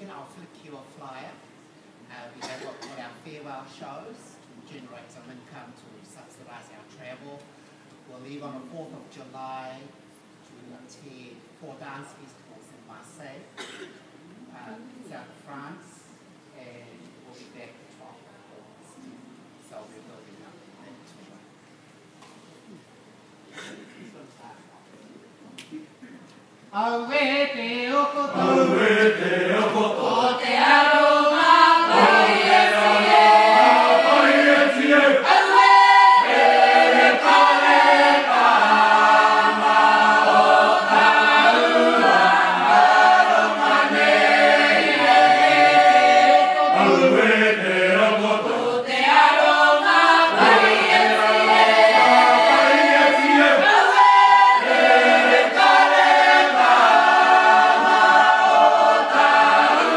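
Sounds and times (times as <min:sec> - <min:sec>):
choir singing a hymn unaccompanied: 0:27.2 - 0:59.9.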